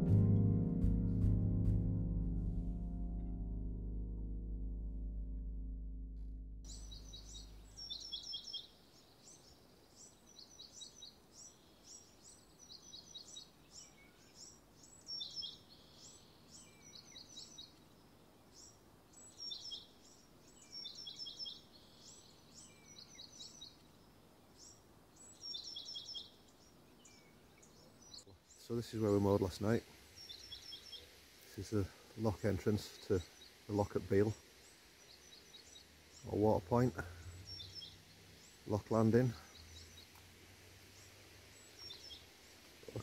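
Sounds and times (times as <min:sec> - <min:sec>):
background music: 0:00.0 - 0:06.7
songbird chirping: 0:00.0 - 0:43.0.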